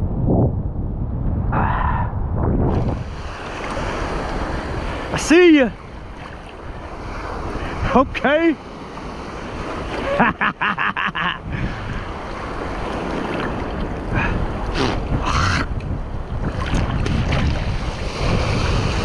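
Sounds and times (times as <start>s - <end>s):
wind buffeting microphone: 0.0s - 10.2s, 11.2s - 19.0s
surf breaking: 2.6s - 10.6s.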